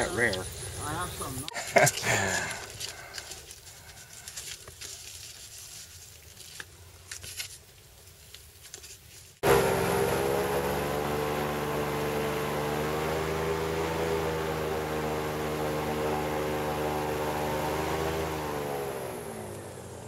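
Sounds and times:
airboat engine and propeller: 9.4 - 20.0.

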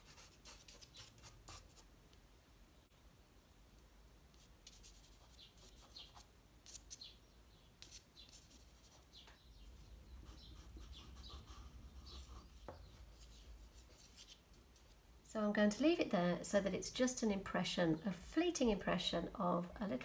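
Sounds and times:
pastel scratching on paper: 0.0 - 1.8, 7.8 - 9.1, 10.2 - 14.9.

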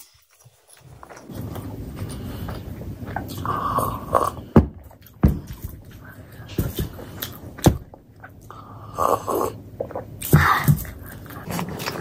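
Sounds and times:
person chewing: 0.0 - 12.0.

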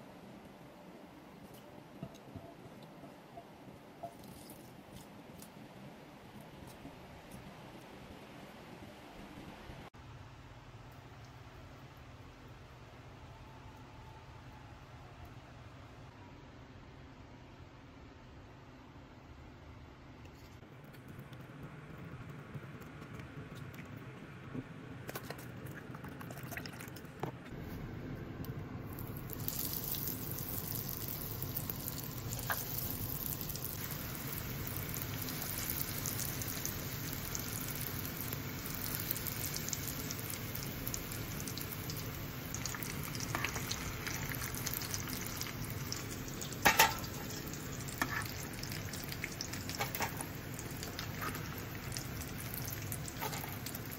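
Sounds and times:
croquettes deep-frying in oil: 28.5 - 53.9.

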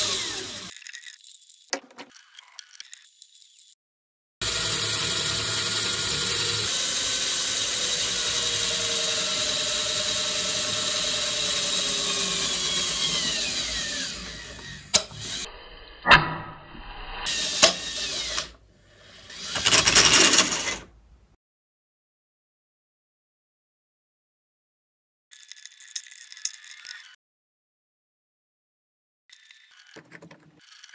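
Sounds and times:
small motor gearbox whirring: 0.0 - 3.8, 4.4 - 15.5, 17.2 - 20.9, 25.3 - 27.2, 29.3 - 30.9.

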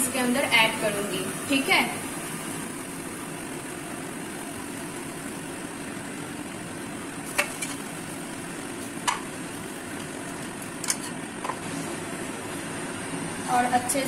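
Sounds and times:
steady hiss: 0.0 - 14.0
spatula stirring bread in pan: 7.2 - 7.9.

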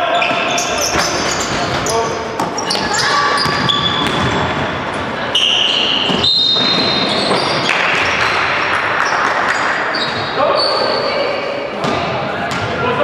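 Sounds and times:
shoes squeaking on court: 0.0 - 8.4, 9.0 - 11.2
basketball bouncing: 2.4 - 4.7, 11.8 - 12.7.

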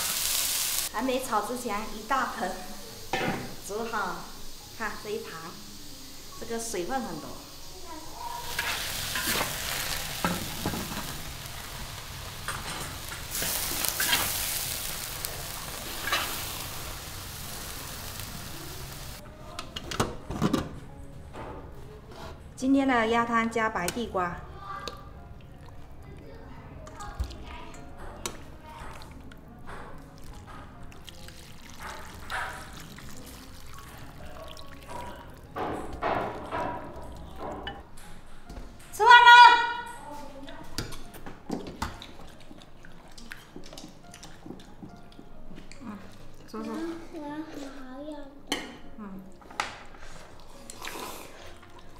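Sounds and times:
cabbage sizzling in wok: 0.0 - 19.2
metal ladle scraping wok: 13.2 - 14.6, 15.8 - 16.6
broth pouring and splashing: 30.2 - 37.4.

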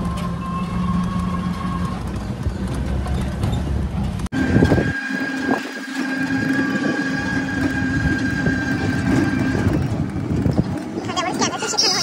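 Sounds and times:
rattling and road rumble: 0.0 - 12.0
steady whine: 4.2 - 12.0.

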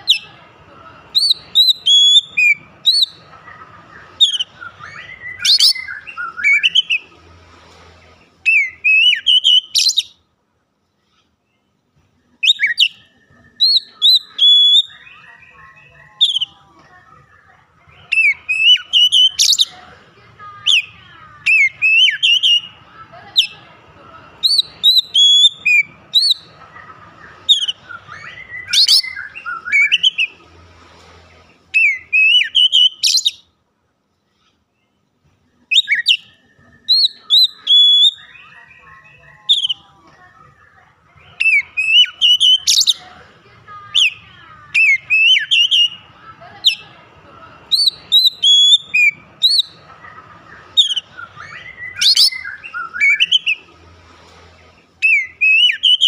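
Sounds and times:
bird singing whistled phrases: 1.2 - 3.2, 4.1 - 7.0, 8.5 - 10.2, 12.4 - 15.4, 18.1 - 19.8, 21.5 - 22.8, 24.4 - 26.4, 27.4 - 30.4, 31.8 - 33.4, 35.7 - 38.7, 39.5 - 39.8, 41.3 - 43.0, 44.0 - 46.0, 47.7 - 49.8, 50.7 - 53.6, 55.0 - 56.0.

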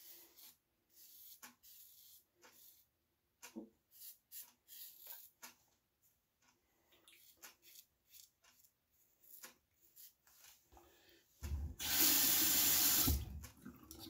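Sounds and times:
tap running into sink: 11.8 - 13.4.

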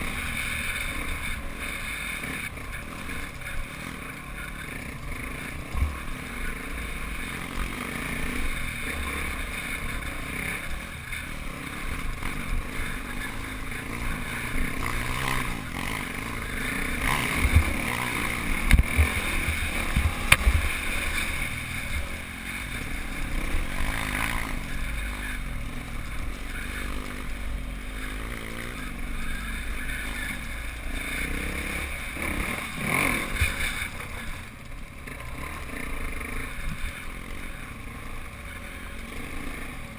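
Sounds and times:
motorcycle engine running: 0.0 - 39.9.

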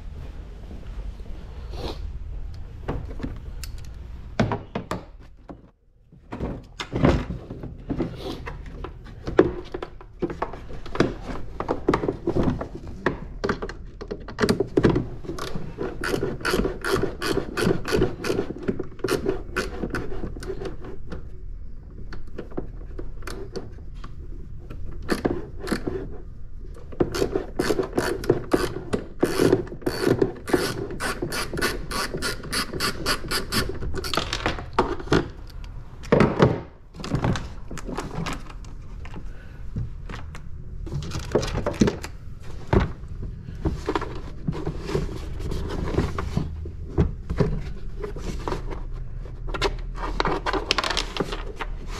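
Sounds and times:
socket ratchet clicking: 29.3 - 34.1.

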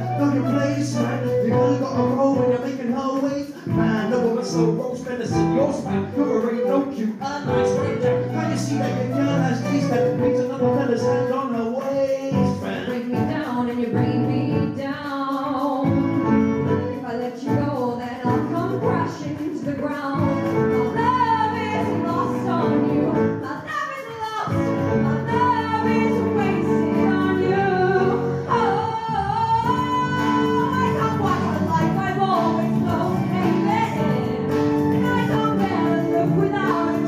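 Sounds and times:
instrumental accompaniment: 0.0 - 37.0
woman singing a ballad: 12.9 - 37.0.

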